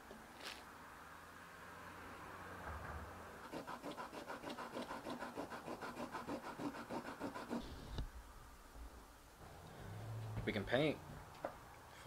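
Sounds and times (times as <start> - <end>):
rapid scraping strokes: 3.4 - 8.0.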